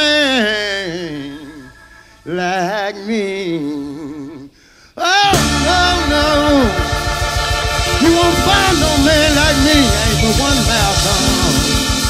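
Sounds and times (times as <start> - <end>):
blues band playing: 5.2 - 12.0
lead guitar melody with vibrato: 5.3 - 12.0.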